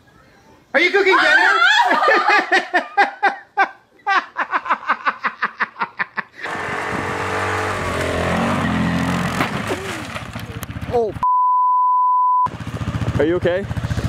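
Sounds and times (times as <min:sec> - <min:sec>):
woman laughing: 0:01.2 - 0:06.5
quad bike engine revving: 0:06.4 - 0:11.2, 0:12.5 - 0:14.0.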